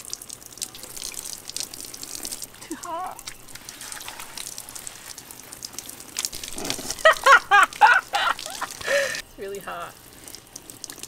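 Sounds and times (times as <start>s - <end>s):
woman laughing high-pitched: 2.6s - 3.2s, 6.8s - 9.2s
shower head spraying water: 6.4s - 9.2s.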